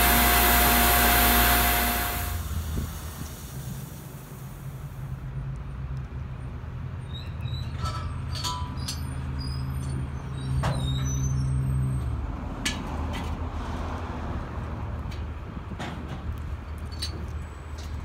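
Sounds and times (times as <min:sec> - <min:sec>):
pump motor humming: 0:00.0 - 0:04.5.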